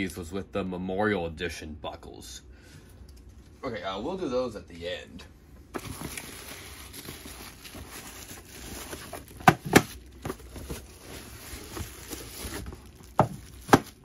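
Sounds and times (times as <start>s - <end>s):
cardboard rustling: 5.7s - 14.0s
bubble wrap crinkling: 5.8s - 14.0s.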